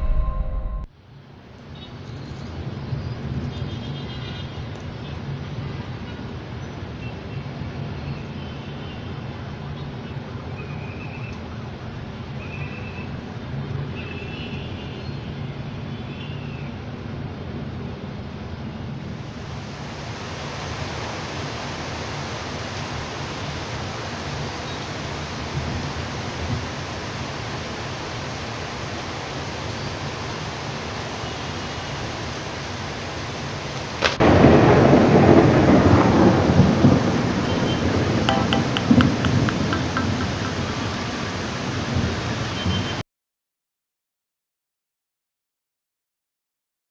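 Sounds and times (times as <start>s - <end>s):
low hum: 0.0s - 0.9s
heavy rain hissing: 19.0s - 43.0s
loud thunderclap rumbling: 34.0s - 41.3s.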